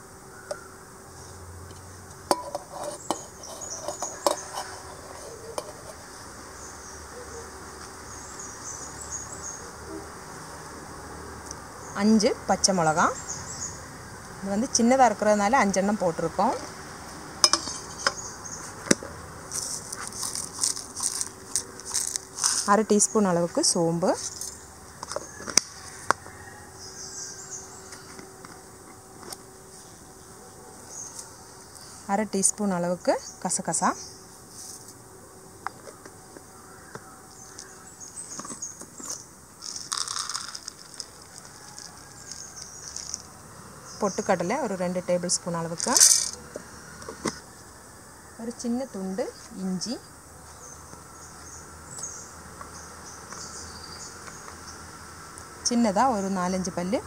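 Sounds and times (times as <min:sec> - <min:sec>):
faint insect chirring: 0:00.0 - 0:57.0
coconut scraped into jar: 0:02.3 - 0:06.0
steel plate clinking on steel jar: 0:17.4 - 0:17.9.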